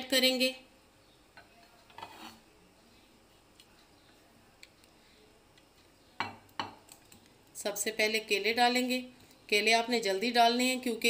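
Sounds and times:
spatula scraping ceramic plate: 1.9 - 2.4.

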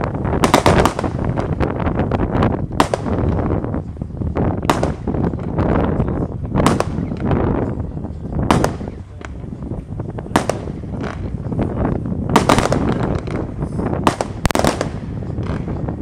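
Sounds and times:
firework bangs: 0.0 - 7.8, 8.4 - 16.0
steady rumble: 0.0 - 16.0.

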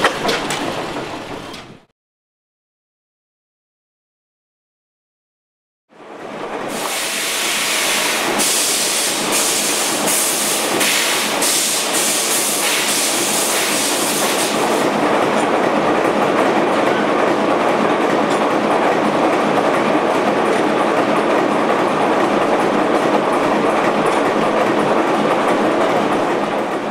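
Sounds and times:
hiss of starting air: 6.7 - 14.9.

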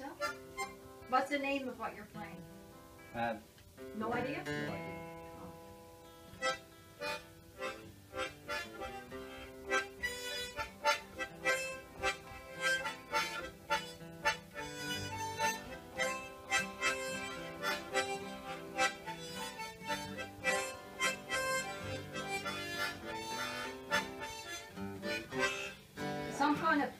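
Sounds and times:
harmonica playing a polka: 0.0 - 0.8, 6.4 - 26.6
acoustic guitar strumming: 0.0 - 26.9.

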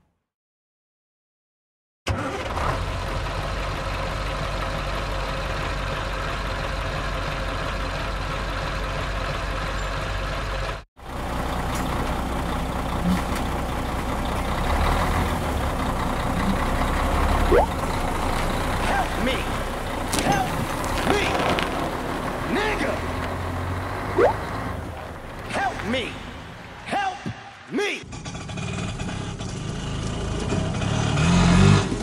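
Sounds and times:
truck engine running: 2.2 - 32.0.

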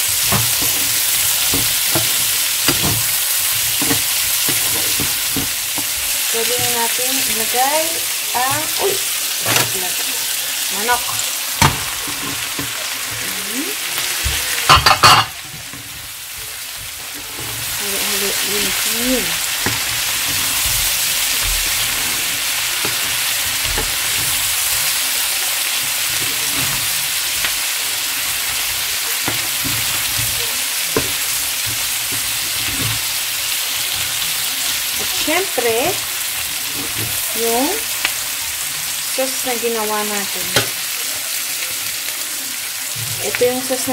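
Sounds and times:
wooden spoon knocking on pan: 0.0 - 7.6, 8.4 - 9.8, 14.2 - 19.0, 19.6 - 21.9, 29.2 - 33.1, 40.5 - 40.8
food sizzling in a frying pan: 0.0 - 43.9
food clattering into pan: 14.3 - 17.8.

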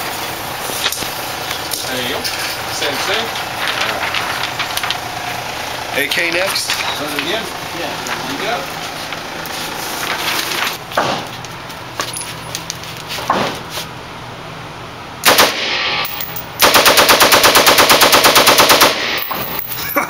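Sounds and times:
automatic gunfire burst: 15.2 - 19.3
rifle shot: 15.2 - 19.4.

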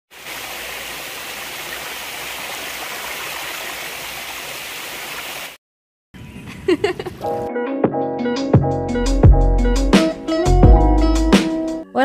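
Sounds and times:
waterfall rushing over rocks: 0.1 - 5.6.

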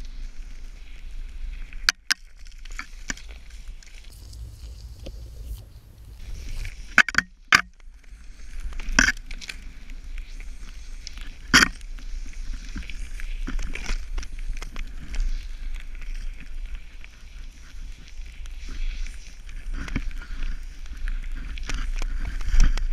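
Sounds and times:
wind rumbling on microphone: 2.6 - 22.9
snowboard sliding through powder: 2.9 - 7.0, 9.6 - 22.9.

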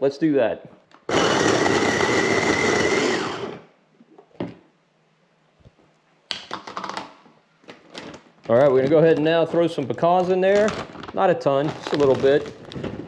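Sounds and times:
electric food chopper whining: 1.1 - 3.7.

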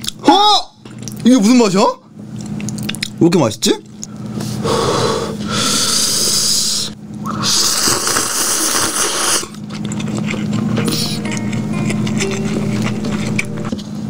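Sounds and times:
person slurping noodles: 4.6 - 13.4.

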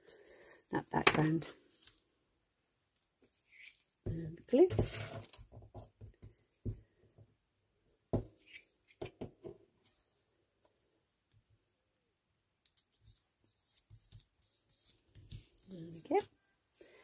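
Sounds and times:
soft taps and knocks: 5.5 - 7.4.

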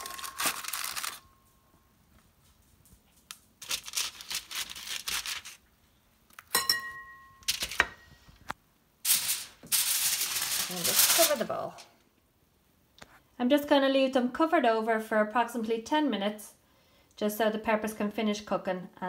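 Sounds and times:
aluminium foil crinkling: 0.0 - 1.6, 3.2 - 5.6, 9.1 - 11.9
glass bowl clink: 6.5 - 8.1.

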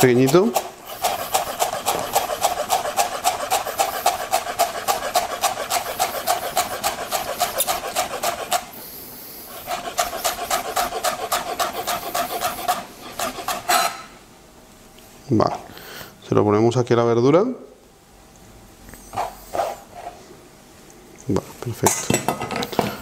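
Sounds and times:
knife chopping on plastic board: 0.0 - 8.7.

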